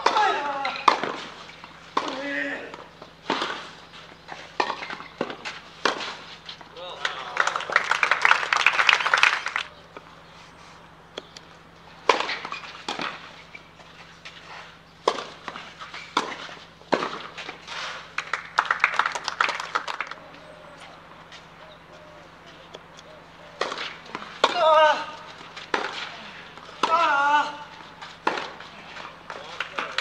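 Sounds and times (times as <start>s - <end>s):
small crowd clapping: 6.7s - 9.7s, 18.1s - 21.0s, 28.4s - 30.0s.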